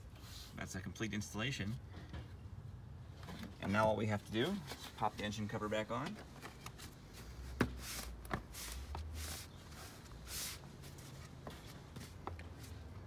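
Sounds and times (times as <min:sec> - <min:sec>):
plastic and gloves scuffing: 0:03.3 - 0:13.0.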